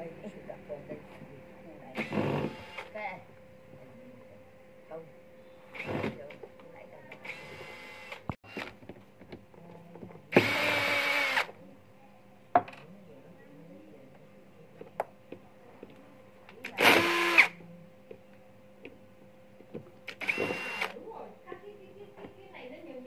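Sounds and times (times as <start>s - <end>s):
cordless drill running: 2.0s - 2.9s, 5.8s - 6.2s, 7.2s - 8.7s, 10.3s - 11.5s, 16.8s - 17.5s, 20.1s - 21.0s.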